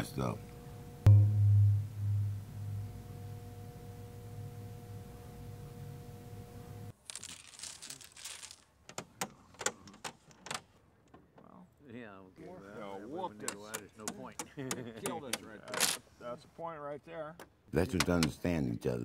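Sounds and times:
low hum with faint higher tones: 0.0 - 6.9
domino tiles clattering on wood: 7.1 - 8.6.

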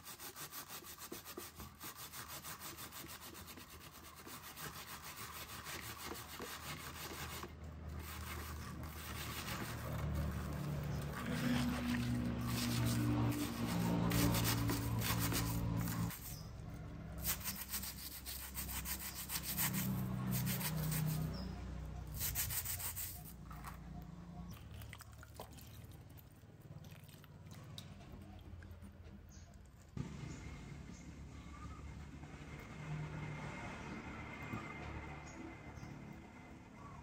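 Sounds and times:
wire brush scrubbing wet metal: 0.0 - 16.5, 17.2 - 23.4.

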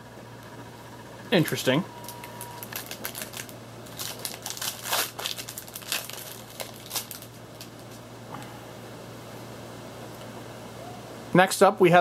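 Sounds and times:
trading cards crinkling: 1.4 - 8.0.

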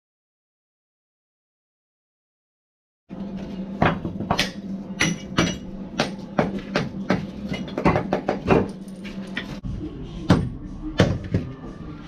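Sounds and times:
hammer striking bricks: 3.8 - 8.8.

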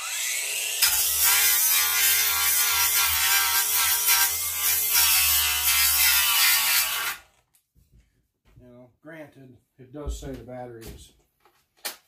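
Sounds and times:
angle grinder on steel: 0.0 - 7.3.

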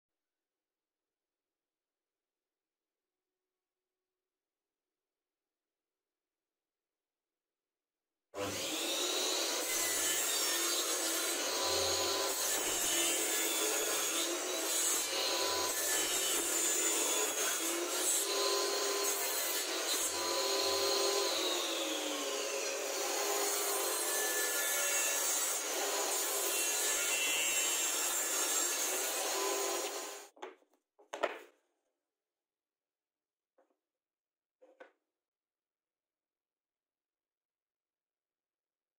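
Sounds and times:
table saw cutting wood: 8.4 - 30.4.

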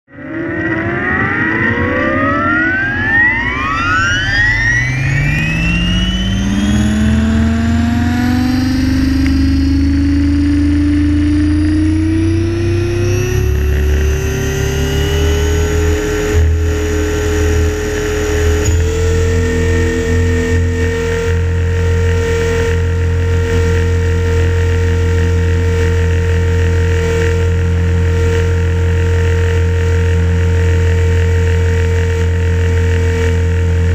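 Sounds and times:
electric motor and gear whine: 0.1 - 33.9
rotor low drone: 0.1 - 33.9.

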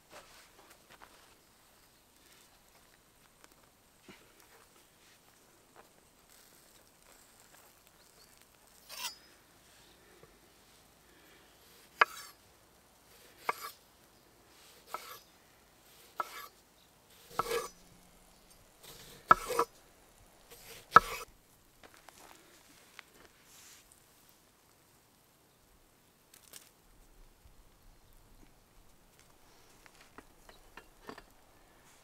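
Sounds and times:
knife slicing tomato: 13.2 - 13.8, 14.8 - 15.2, 15.9 - 16.5, 17.1 - 17.8, 18.8 - 19.7, 20.5 - 21.3
knife tapping wooden board: 19.3 - 19.6.

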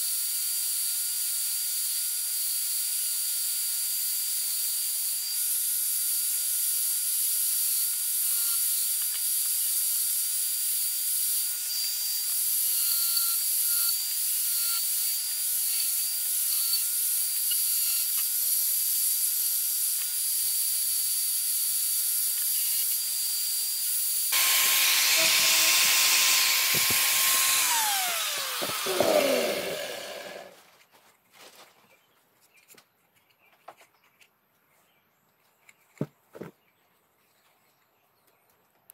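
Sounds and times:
angle grinder sanding wood: 24.3 - 30.6
grinder winding down: 24.3 - 30.6.

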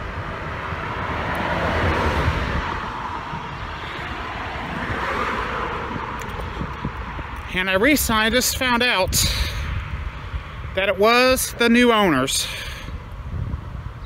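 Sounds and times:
road traffic passing: 0.0 - 14.0
wind buffeting microphone: 0.0 - 14.0.

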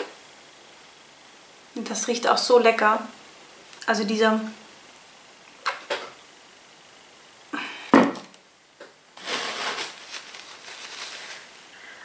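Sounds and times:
breathy rustling: 10.2 - 12.0.

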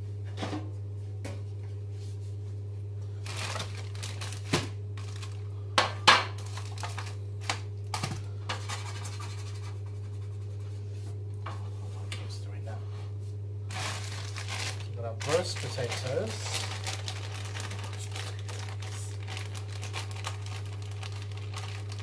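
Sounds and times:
steady low hum: 0.0 - 22.0
packaging crinkling: 3.1 - 5.5, 6.3 - 8.8, 13.7 - 22.0
items knocking on worktop: 5.8 - 7.1.

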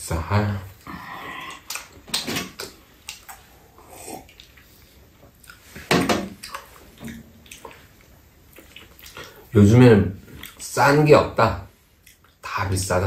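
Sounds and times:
soft chewing: 0.7 - 9.5, 10.2 - 10.8, 11.7 - 12.5.

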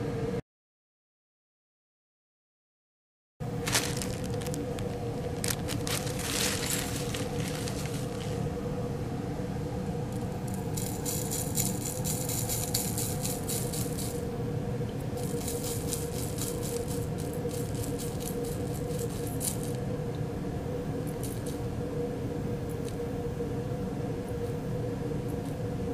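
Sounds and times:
low hum: 3.4 - 25.9
powder rattling into plastic cup: 3.6 - 8.4.

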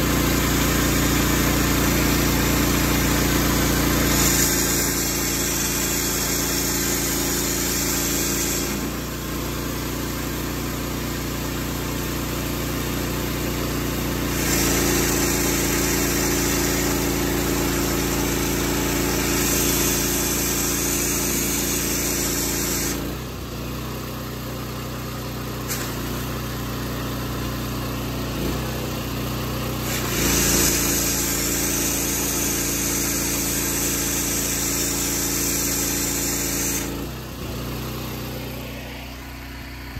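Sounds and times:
high-pressure water jet hissing: 0.0 - 10.6, 14.1 - 23.3, 25.6 - 26.6, 29.7 - 37.8
pressure washer engine running: 0.0 - 39.9.

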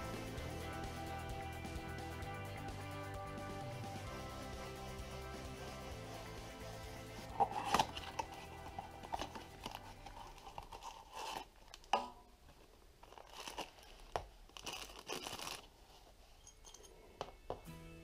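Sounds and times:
wrapping crinkling and tearing: 7.3 - 11.9, 12.5 - 16.4.

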